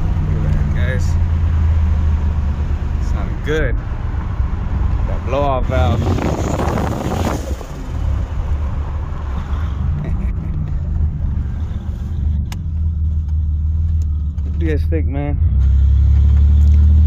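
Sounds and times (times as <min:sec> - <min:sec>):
car engine droning: 0:00.0 - 0:17.0.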